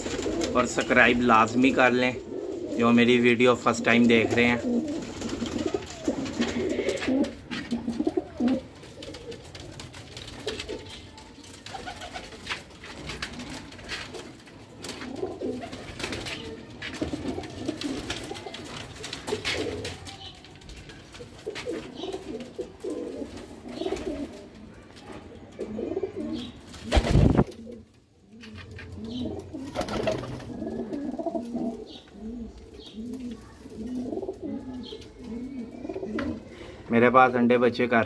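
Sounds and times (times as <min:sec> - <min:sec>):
pigeons cooing: 0:00.0 - 0:37.0.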